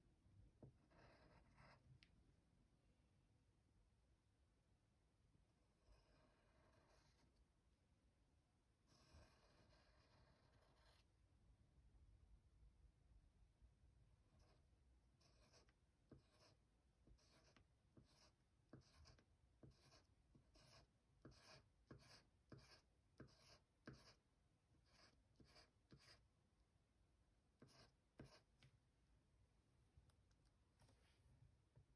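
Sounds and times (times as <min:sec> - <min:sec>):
pencil scratching on paper: 0:00.6 - 0:01.9, 0:05.6 - 0:07.4, 0:08.8 - 0:11.1, 0:14.2 - 0:26.3, 0:27.5 - 0:28.7.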